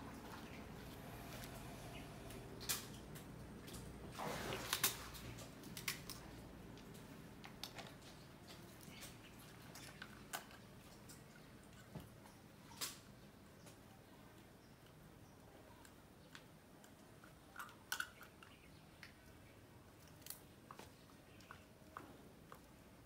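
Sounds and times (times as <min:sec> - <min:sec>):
crocodiles crunching shells: 0:16.8 - 0:19.2, 0:19.9 - 0:22.6.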